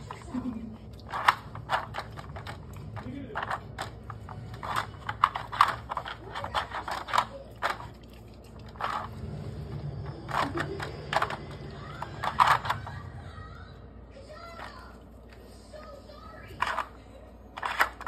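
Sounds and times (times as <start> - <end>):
hard plastic clicking and clattering: 1.0 - 8.0.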